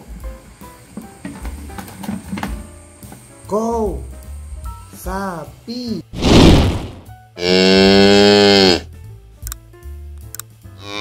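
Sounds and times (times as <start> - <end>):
short whoosh: 6.2 - 7.1
cow mooing: 7.4 - 8.9, 10.8 - 11.0.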